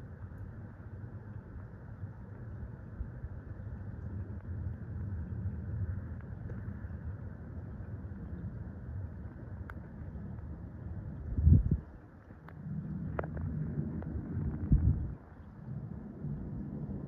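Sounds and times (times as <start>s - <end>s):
distant aircraft engines rumbling: 0.1s - 17.0s.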